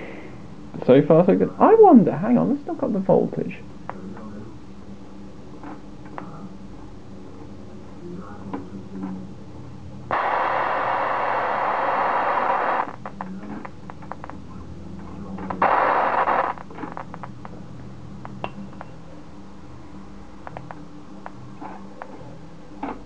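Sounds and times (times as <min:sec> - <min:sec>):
loud steady hiss: 0:10.1 - 0:13.1, 0:15.6 - 0:17.0
geiger counter clicks: 0:13.2 - 0:14.4.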